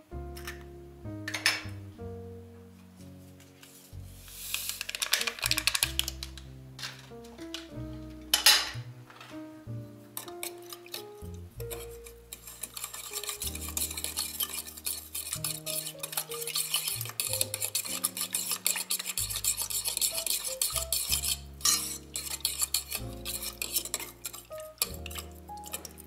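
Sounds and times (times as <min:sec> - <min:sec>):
fork clicking against metal pot: 0:10.2 - 0:11.1, 0:11.7 - 0:26.0
liquid swishing: 0:10.2 - 0:26.0.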